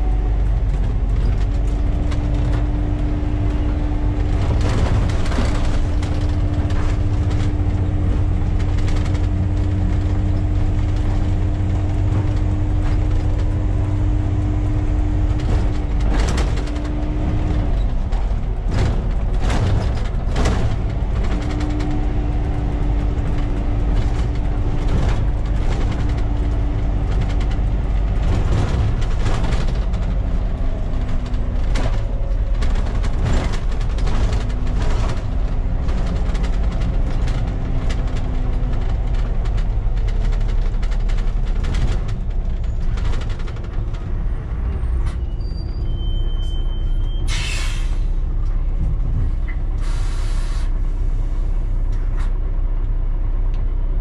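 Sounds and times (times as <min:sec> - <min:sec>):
cab rattling: 0:00.0 - 0:46.1
bus diesel engine running: 0:00.0 - 0:54.0
air brake hisses: 0:47.3 - 0:48.2, 0:49.8 - 0:51.2.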